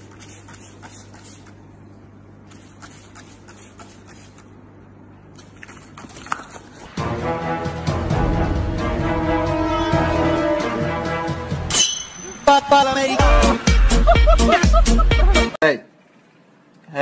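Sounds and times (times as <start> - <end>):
spray bottle squirting: 0.0 - 1.6, 2.5 - 4.5, 5.4 - 6.9
loud music: 7.0 - 11.8, 12.4 - 15.6.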